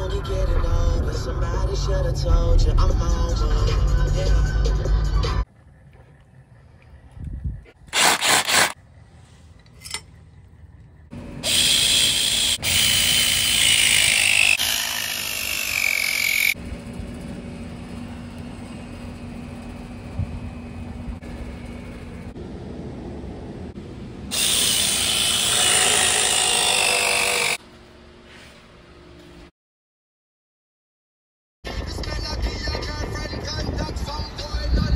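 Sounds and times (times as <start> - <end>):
power tool running: 7.8 - 8.8, 11.1 - 22.3, 24.3 - 27.6.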